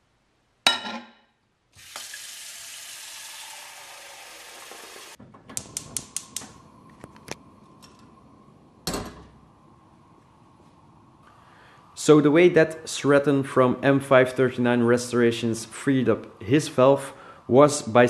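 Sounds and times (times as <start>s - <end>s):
gas igniter clicking: 5.5s - 6.6s.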